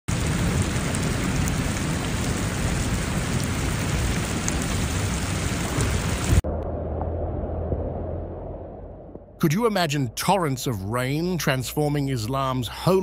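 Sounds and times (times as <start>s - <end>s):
heavy rain pouring: 0.1s - 6.5s, 9.4s - 13.0s.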